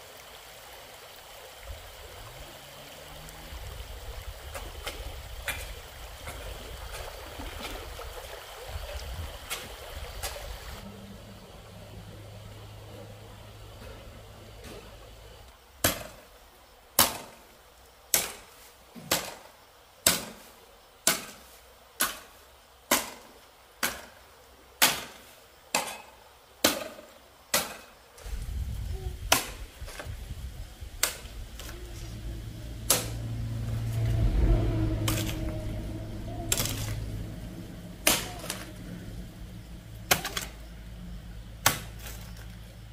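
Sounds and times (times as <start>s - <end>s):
low rumble: 30.1s - 41.6s.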